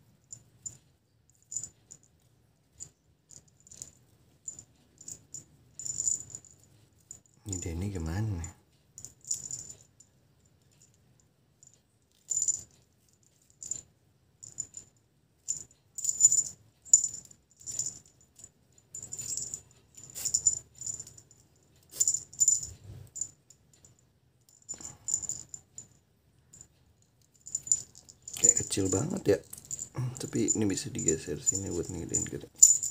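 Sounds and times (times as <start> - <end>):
small bell jingling: 0.2 - 2.1, 2.7 - 11.0, 11.6 - 32.9.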